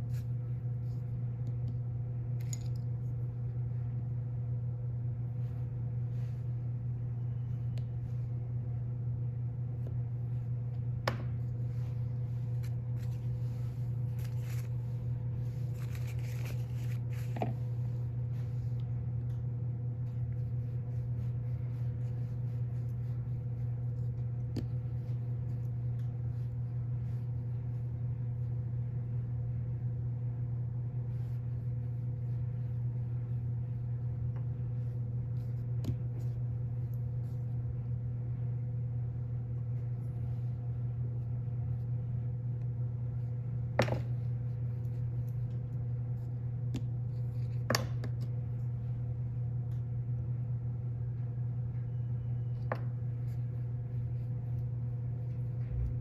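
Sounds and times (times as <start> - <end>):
steady low hum: 0.0 - 56.0
paper rustling: 11.9 - 17.8.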